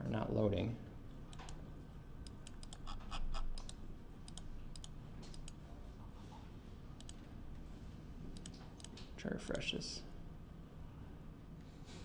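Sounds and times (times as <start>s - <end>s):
mouse and keyboard clicking: 2.2s - 5.6s, 7.0s - 7.2s, 8.4s - 9.0s.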